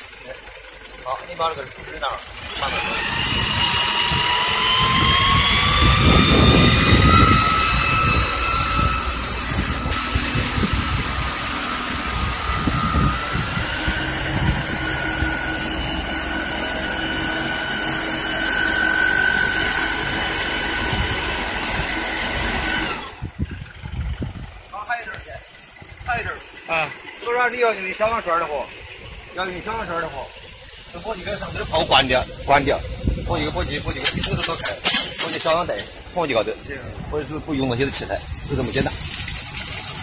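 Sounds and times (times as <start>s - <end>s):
fire pump and diesel engine whining: 0.0s - 40.0s
water jet hissing: 25.6s - 40.0s.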